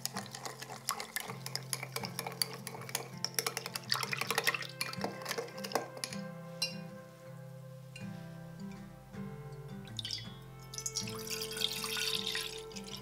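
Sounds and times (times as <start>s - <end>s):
utensil clicking against mixing bowl: 0.0s - 6.2s
background music: 0.0s - 13.0s.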